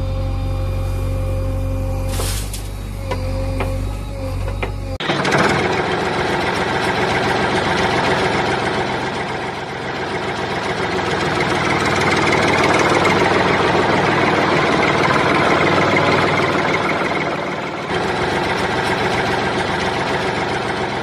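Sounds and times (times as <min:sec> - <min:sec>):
diesel tractor engine chugging: 0:00.0 - 0:21.0.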